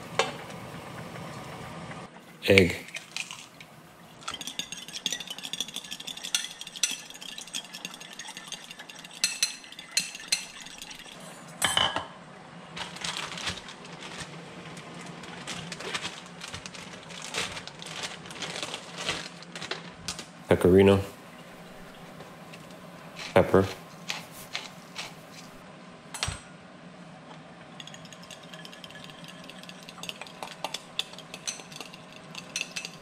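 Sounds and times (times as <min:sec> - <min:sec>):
fork whisking eggs in a bowl: 0:04.2 - 0:11.2, 0:27.8 - 0:33.0
plastic bag rustling: 0:12.7 - 0:20.4, 0:21.6 - 0:25.6.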